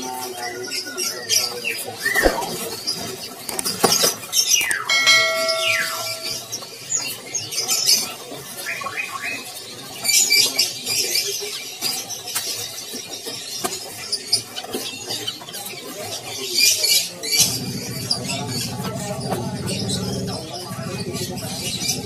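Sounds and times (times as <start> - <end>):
caged birds chirping: 0.0 - 22.0
clear ringing tone: 4.7 - 6.5.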